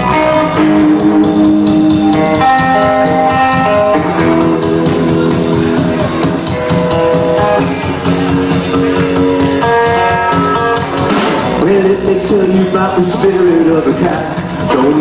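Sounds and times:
electric guitar: 0.0 - 15.0
live rock band playing: 0.0 - 15.0.

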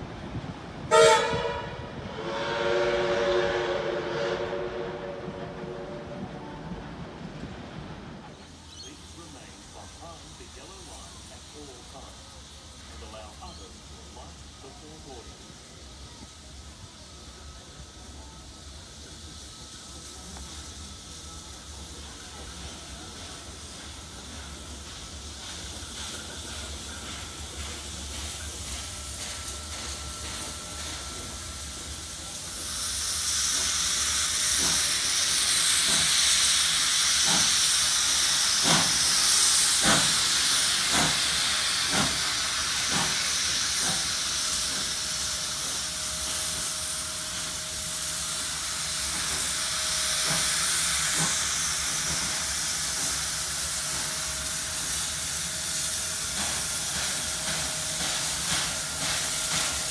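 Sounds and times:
steam hiss: 0.0 - 59.9.

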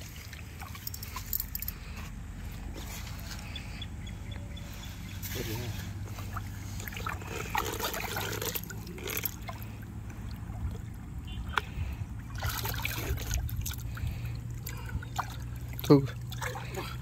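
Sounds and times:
water splashing and trickling: 0.0 - 3.8, 4.7 - 17.0
fish thrashing at water surface: 6.0 - 17.0.

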